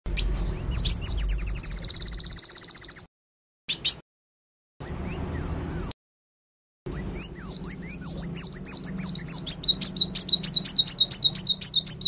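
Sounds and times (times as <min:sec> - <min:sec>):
small bird singing: 0:00.1 - 0:03.1, 0:03.7 - 0:04.0, 0:04.8 - 0:06.0, 0:06.9 - 0:12.0.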